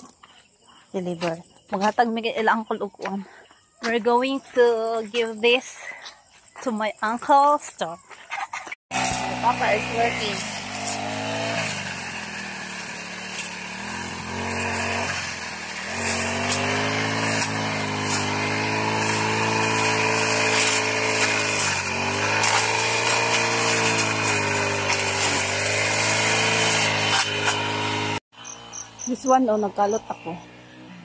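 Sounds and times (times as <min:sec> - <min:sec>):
brush cutter engine running: 0:08.9 - 0:31.0.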